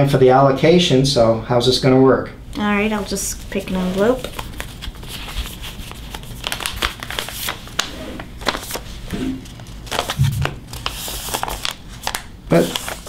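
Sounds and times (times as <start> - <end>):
paper envelopes rustling: 3.0 - 13.0.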